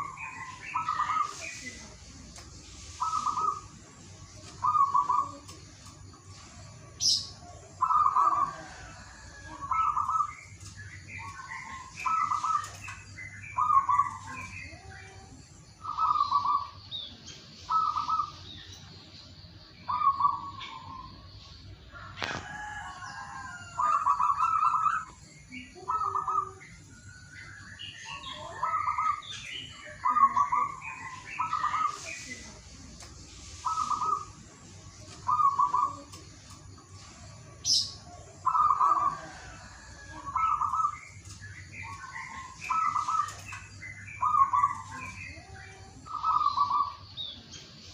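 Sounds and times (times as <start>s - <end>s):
small birds chirping: 0.0s - 47.9s
dove cooing: 2.8s - 3.8s, 4.4s - 15.2s, 15.8s - 16.8s, 17.7s - 18.5s, 19.9s - 21.1s, 22.0s - 26.6s, 28.1s - 29.2s, 29.9s - 32.2s, 33.6s - 34.4s, 35.1s - 36.3s, 37.4s - 41.0s, 41.8s - 47.0s.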